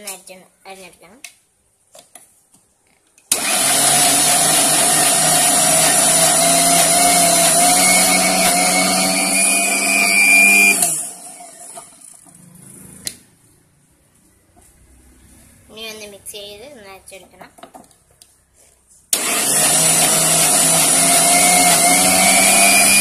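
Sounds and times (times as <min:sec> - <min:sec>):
mixer grinder motor running: 0:03.3 - 0:12.0, 0:19.2 - 0:23.0.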